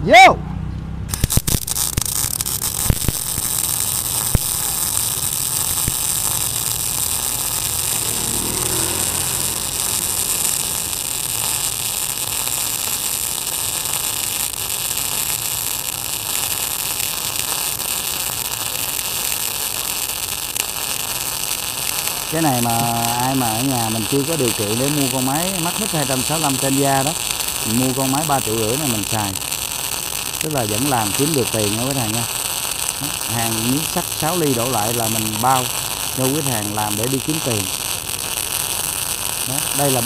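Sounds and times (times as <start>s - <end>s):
sharp clicks: 1.1s - 3.6s
welding arc hissing: 1.1s - 40.0s.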